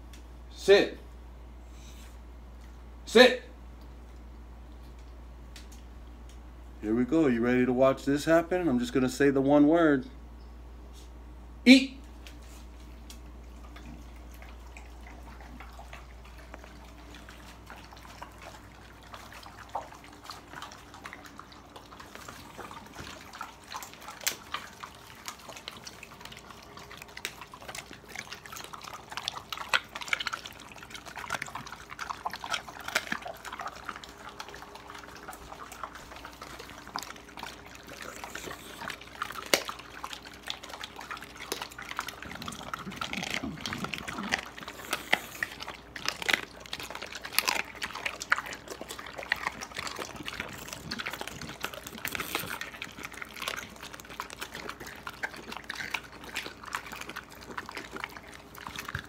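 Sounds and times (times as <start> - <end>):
dogs licking and chewing: 1.7 - 9.9, 12.0 - 59.0.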